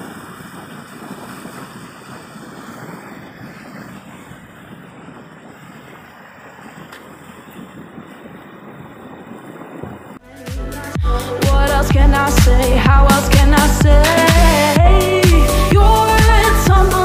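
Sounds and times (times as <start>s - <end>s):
flowing river water: 0.0s - 10.2s
wind on microphone: 0.0s - 17.0s.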